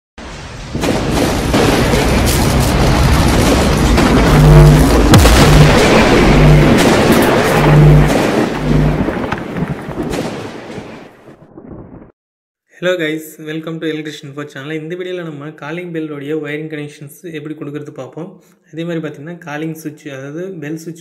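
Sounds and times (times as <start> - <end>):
deep booms: 0.2 - 12.1
dense crackling rushing noise: 0.2 - 12.1
low pulsing hits: 0.6 - 10.6.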